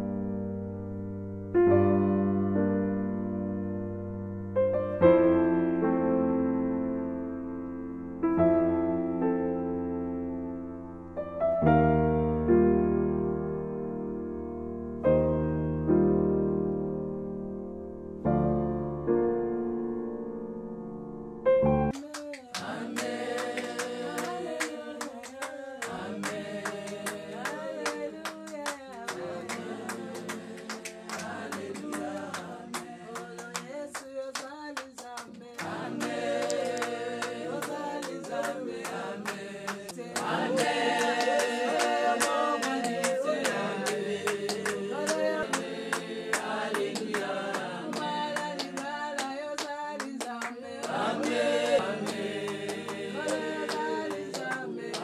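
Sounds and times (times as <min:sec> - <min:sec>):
hand claps: 0:21.9 - 0:55.0
women singing unaccompanied: 0:22.0 - 0:55.0.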